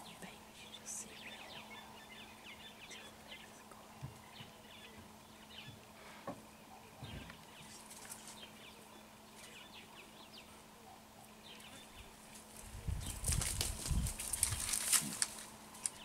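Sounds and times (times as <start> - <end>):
faint low hum: 0.0 - 16.0.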